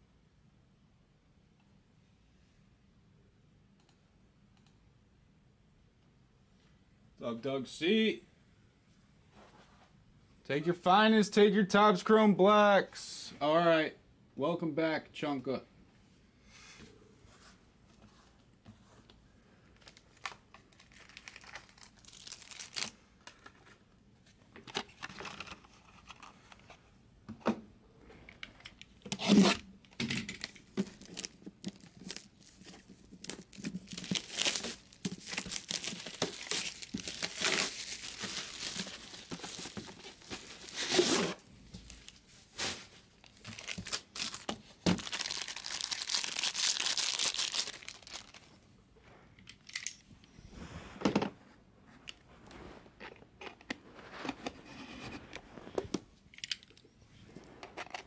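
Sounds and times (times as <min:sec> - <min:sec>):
plastic wrapping crinkling: 0:19.8 - 0:23.6, 0:30.4 - 0:48.6.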